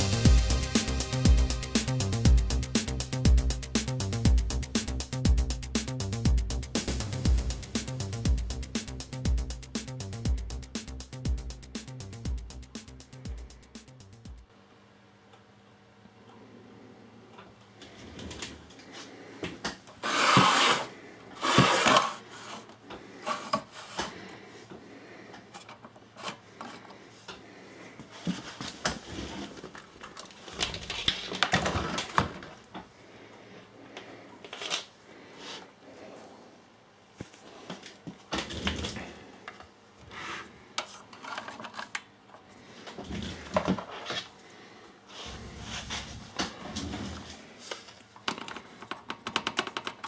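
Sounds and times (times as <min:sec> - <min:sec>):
scraping rubs: 0:20.0 - 0:24.1
hands handling wires and parts: 0:28.0 - 0:32.9, 0:40.8 - 0:44.4.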